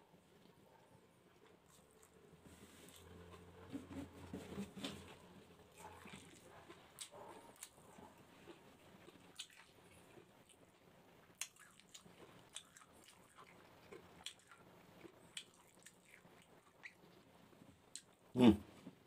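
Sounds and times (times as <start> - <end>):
person chewing: 5.7 - 17.0.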